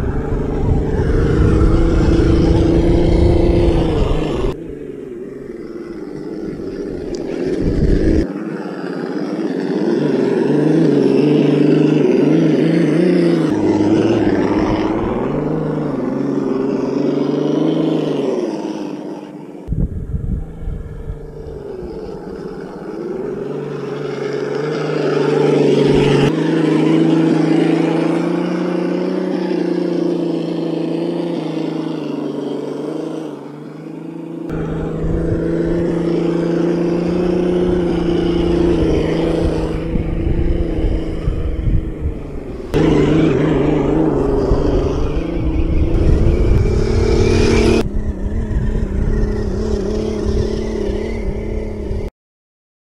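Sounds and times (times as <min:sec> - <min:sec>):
wind rumble on microphone: 0:00.0 - 0:08.3, 0:13.4 - 0:17.6, 0:19.7 - 0:24.5, 0:34.5 - 0:52.1
electric motor and gearbox whining: 0:00.0 - 0:52.0.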